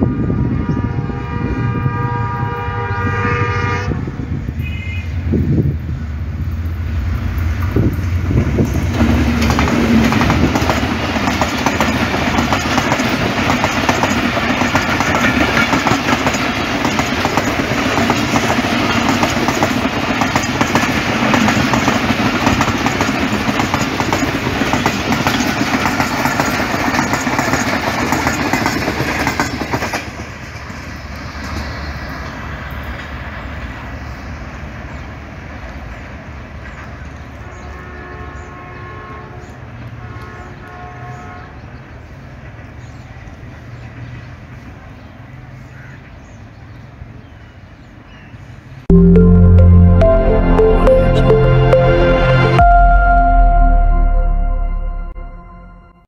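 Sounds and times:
diesel locomotive engine: 0.0 - 38.6
train coaches rumbling on rails: 0.0 - 48.8.

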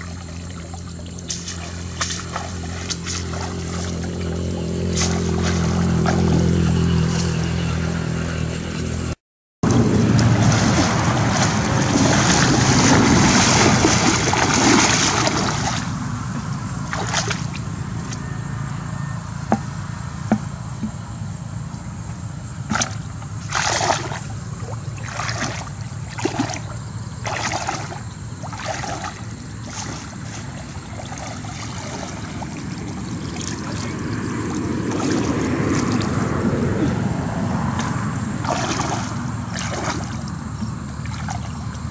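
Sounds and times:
muddy water splashing: 0.0 - 7.4, 9.6 - 18.3, 22.6 - 41.9
basket tapping on bucket: 20.3 - 21.0.

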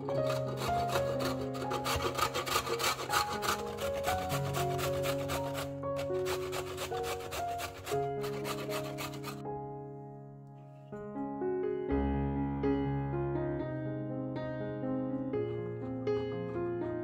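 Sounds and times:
carrot rasping on metal grater: 0.0 - 9.4
soft piano music: 0.0 - 17.0.

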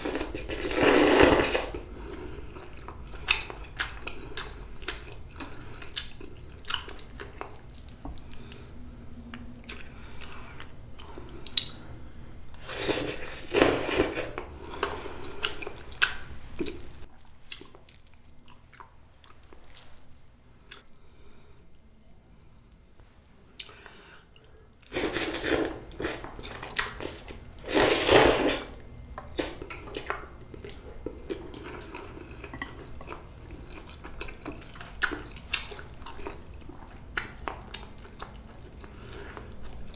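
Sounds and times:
loud noodle slurps: 0.0 - 1.8, 12.6 - 14.3, 27.6 - 28.8
wet chewing: 2.5 - 11.8, 29.2 - 39.9.

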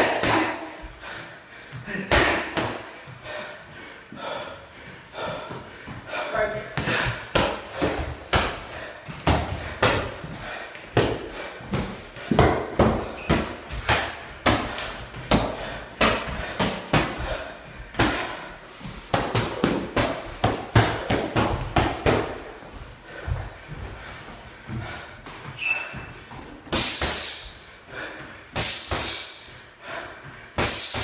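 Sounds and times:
boxing gloves hitting focus mitts: 0.0 - 0.8, 1.8 - 3.0, 6.7 - 22.5.

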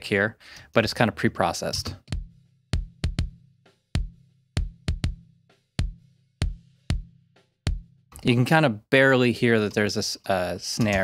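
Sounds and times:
kick drum thumps: 1.8 - 8.0.

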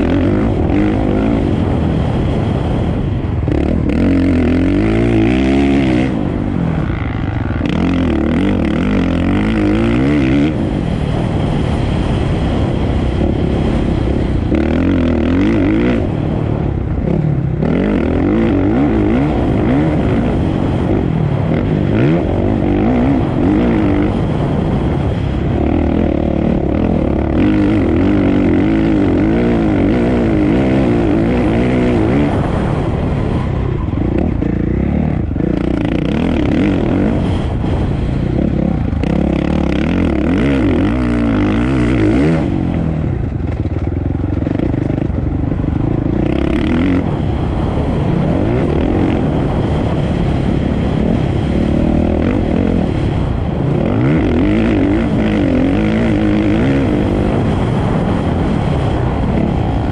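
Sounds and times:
racing motorcycle engines revving: 0.0 - 59.9.

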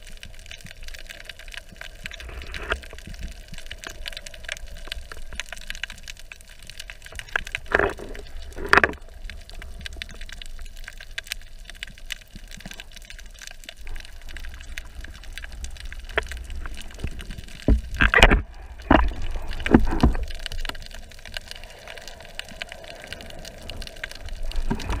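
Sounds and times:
underwater crackling clicks: 0.0 - 25.0
low underwater rumble: 13.6 - 25.0.

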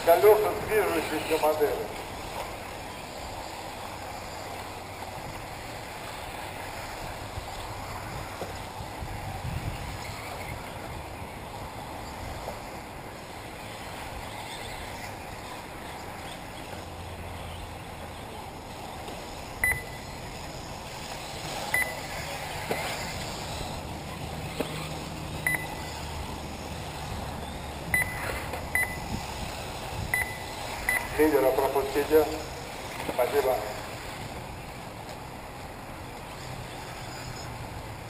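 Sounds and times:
electric rc cars running: 0.0 - 38.0
outdoor noise: 0.0 - 38.0
short high beeps: 19.6 - 20.1, 21.7 - 22.1, 25.4 - 25.9, 27.4 - 29.1, 30.1 - 31.2.

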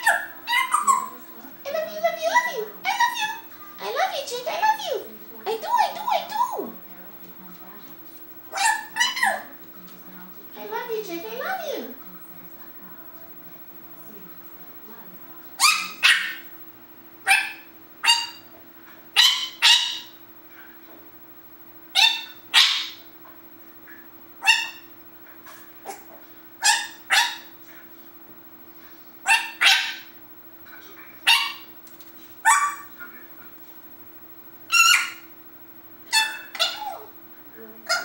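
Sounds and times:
parrot bark-like calls: 0.0 - 1.2, 8.5 - 9.6, 15.6 - 16.6, 17.2 - 18.5, 19.1 - 20.2, 21.9 - 23.1, 23.9 - 27.6, 29.2 - 30.2, 31.2 - 31.7, 32.4 - 33.1, 34.6 - 35.4, 36.0 - 37.2.

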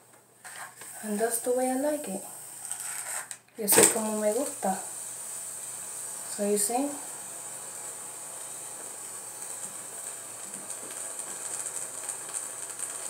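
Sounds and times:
steady high hiss: 0.0 - 13.0.

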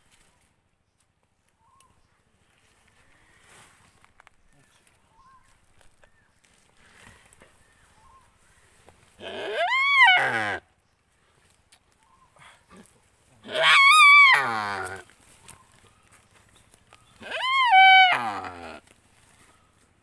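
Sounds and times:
deer bleating in distress: 9.2 - 10.6, 13.4 - 15.1, 17.2 - 18.8.

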